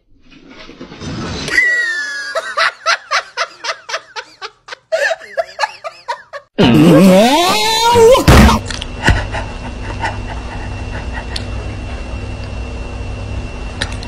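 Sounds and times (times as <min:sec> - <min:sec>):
person laughing: 0:01.5 - 0:12.0.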